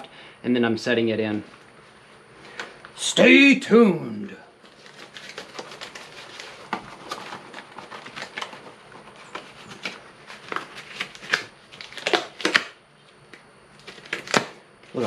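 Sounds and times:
rubber gloves rustling and squeaking: 4.6 - 13.2.

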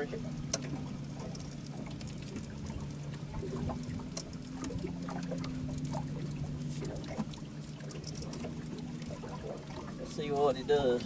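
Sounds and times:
steady low hum: 0.0 - 11.0
water splashing: 0.0 - 11.0
light ticks: 0.4 - 2.6, 4.0 - 6.0.

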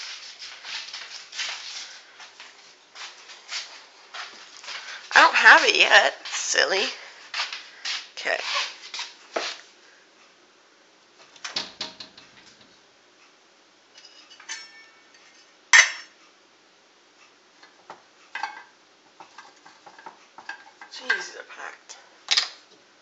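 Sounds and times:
dishes and utensils clinking: 14.0 - 16.2, 18.4 - 21.3.

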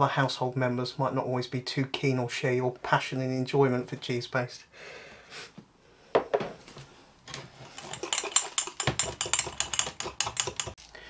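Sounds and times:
knock on worktop: 6.2 - 6.5
glass tumbler clinking against spoon: 7.7 - 10.8.

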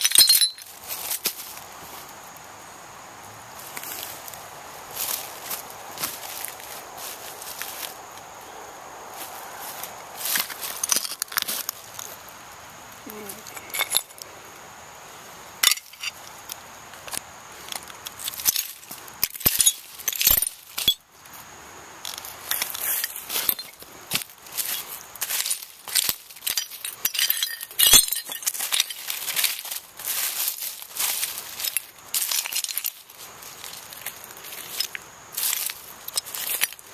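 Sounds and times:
broken glass clinking and crunching: 0.0 - 0.7, 10.7 - 11.5, 13.5 - 14.2, 15.6 - 16.2, 18.2 - 21.0, 22.5 - 33.0, 34.6 - 36.8.

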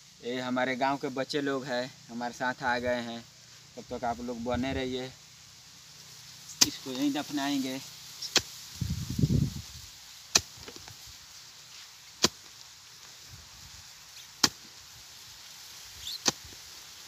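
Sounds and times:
pick striking hard ground: 6.5 - 7.1, 8.2 - 8.6, 10.3 - 11.0, 12.2 - 12.6, 14.2 - 14.8, 16.0 - 16.6.

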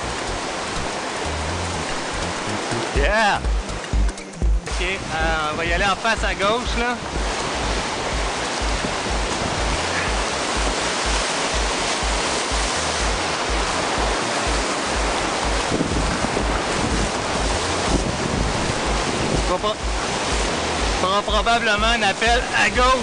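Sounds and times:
whitewater rapids rushing: 0.0 - 23.0
wind on microphone: 4.6 - 21.0.

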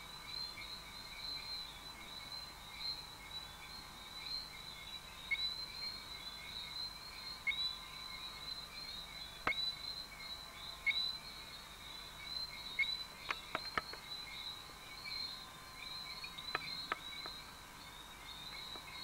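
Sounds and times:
small repeated chirps: 10.8 - 19.0.

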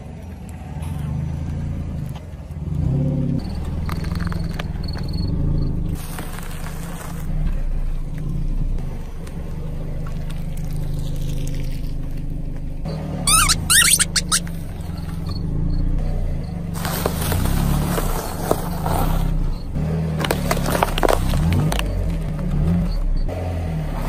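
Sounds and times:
car engine idling: 0.0 - 23.6
crunchy item crunching under wheel: 2.8 - 7.7, 16.7 - 22.8
rubber ducks squeaking: 13.3 - 15.5.

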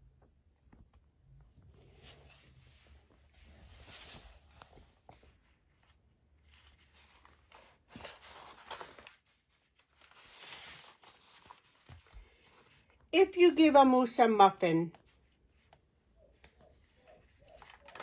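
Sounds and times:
book pages rustling: 1.6 - 13.1, 14.9 - 18.0
book cover opening: 6.6 - 12.6.

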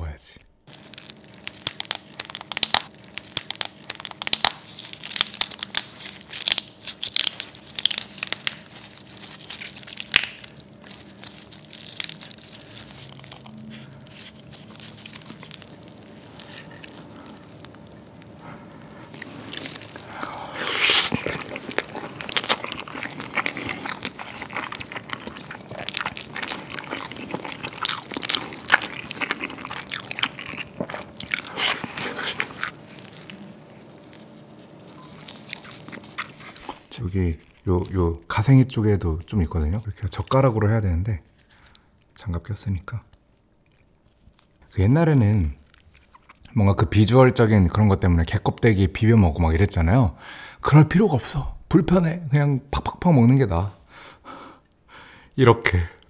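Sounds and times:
wet chewing and smacking: 0.7 - 38.3, 43.1 - 44.7, 45.6 - 46.6
crab shell crackling and squelching: 0.7 - 49.1.

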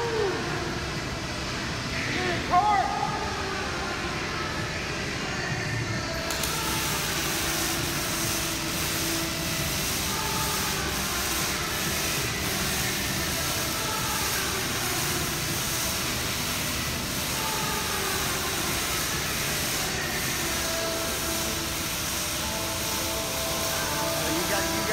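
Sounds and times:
arc welding hiss: 6.1 - 24.9.

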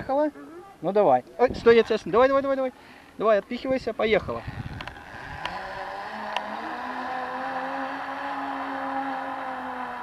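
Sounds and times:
pulley wheels whirring on cable: 4.4 - 10.0.

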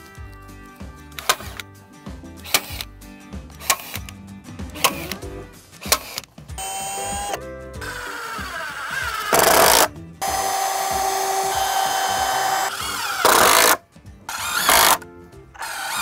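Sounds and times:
cordless drill driving screws: 5.9 - 15.0, 15.6 - 16.0.

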